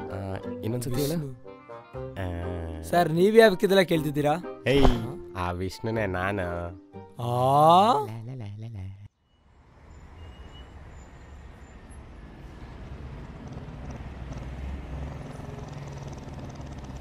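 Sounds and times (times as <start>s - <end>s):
motorcycle engine approaching: 12.7s - 17.0s.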